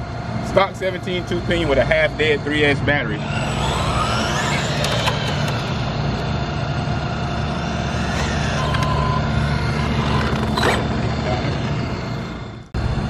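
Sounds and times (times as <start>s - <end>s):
electric motor whining: 3.0s - 12.7s
low rumble: 3.2s - 13.0s.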